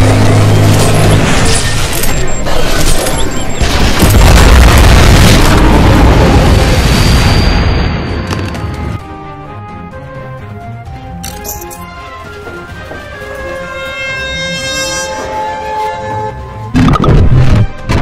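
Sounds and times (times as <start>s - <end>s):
cinematic music score: 0.0s - 18.0s
explosion booms: 3.6s - 8.2s.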